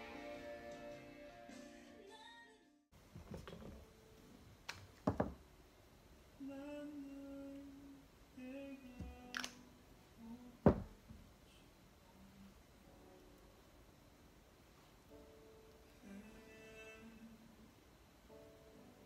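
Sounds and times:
containers knocking on table: 5.0 - 5.4, 10.7 - 10.9.

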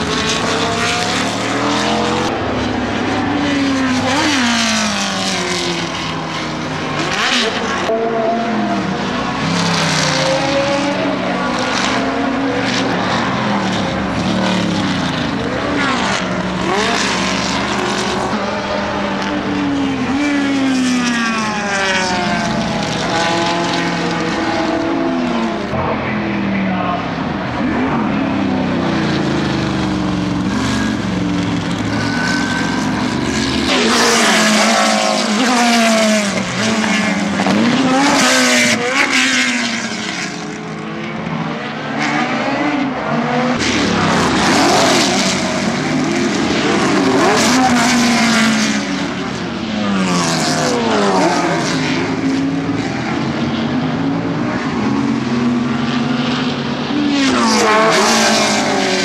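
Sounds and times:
racing cars passing at speed: 0.0 - 59.0.

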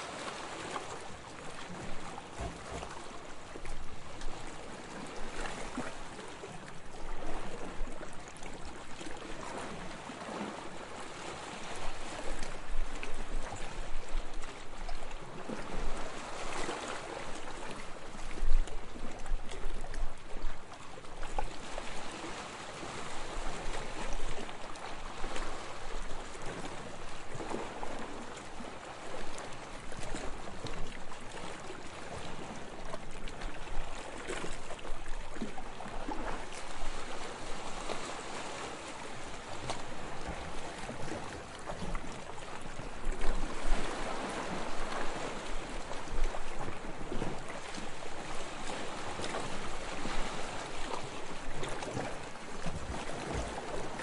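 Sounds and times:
calm waves lapping: 0.0 - 54.0.

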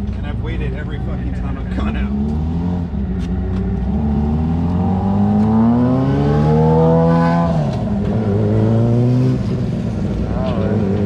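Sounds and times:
motorcycle accelerating past: 3.9 - 9.8.

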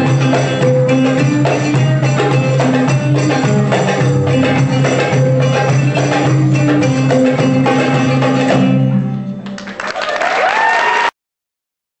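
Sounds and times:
lute and hand drum music: 0.0 - 9.9
audience clapping: 9.4 - 11.1.

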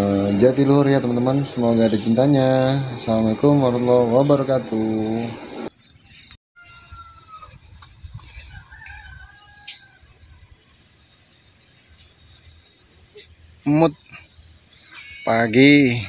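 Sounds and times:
crickets chirring: 0.0 - 16.0.

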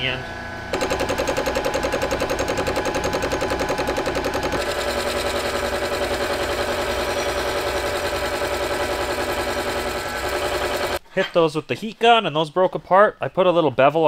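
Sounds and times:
metal lathe running: 0.8 - 11.0.

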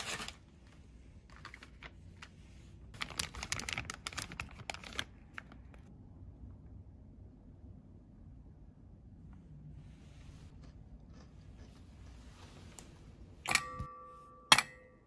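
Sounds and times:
plastic snack bag crinkling: 0.0 - 5.9.

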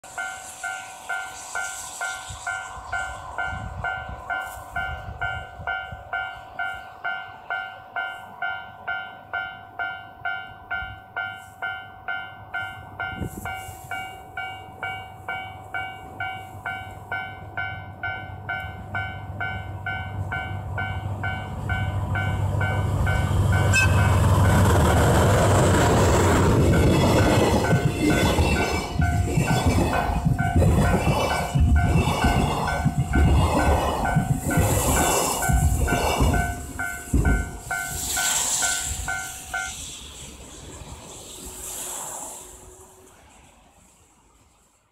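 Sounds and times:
diesel locomotive rumble: 0.0 - 11.2, 12.0 - 43.2
train horn: 23.6 - 24.2.

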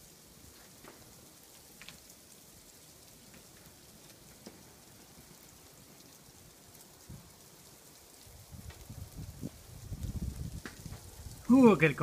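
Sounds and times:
sharp ticks of ice pellets: 0.5 - 2.4.

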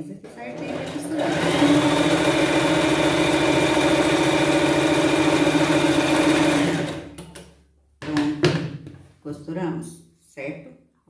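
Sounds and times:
sewing machine running: 0.3 - 7.2.

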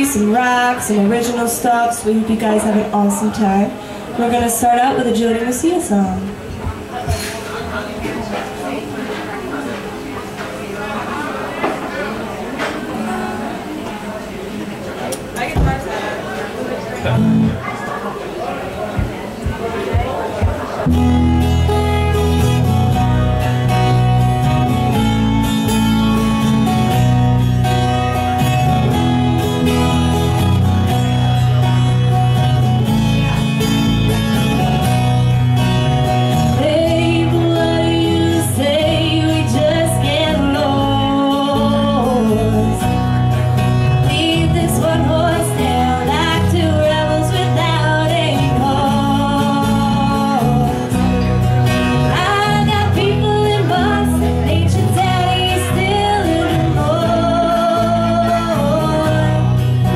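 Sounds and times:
strummed acoustic guitar: 16.9 - 17.8, 18.8 - 59.9
bass guitar: 17.0 - 17.6, 19.0 - 59.9
woman singing: 36.5 - 43.1, 43.8 - 50.9, 52.0 - 59.8.

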